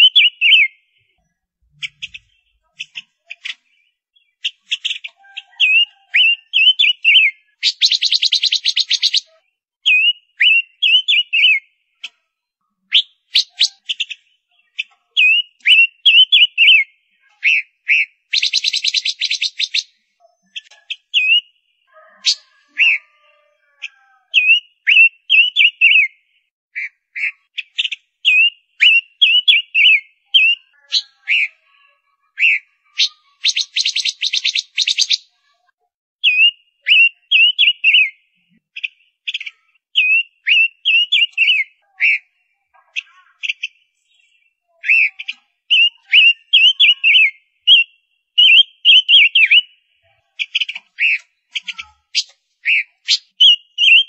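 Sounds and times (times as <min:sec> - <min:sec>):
bird whistled calls: 0:00.0 - 0:00.8, 0:01.8 - 0:09.3, 0:09.9 - 0:11.6, 0:12.9 - 0:23.3, 0:23.9 - 0:26.2, 0:26.8 - 0:31.5, 0:32.4 - 0:35.3, 0:36.2 - 0:38.2, 0:40.0 - 0:42.3, 0:44.8 - 0:49.8, 0:50.5 - 0:54.0.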